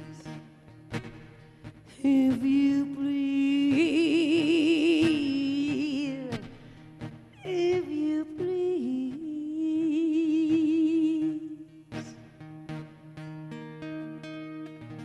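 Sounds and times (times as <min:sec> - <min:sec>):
acoustic guitar: 0:00.0 - 0:15.0
woman singing with vibrato: 0:01.9 - 0:06.6, 0:07.4 - 0:12.2.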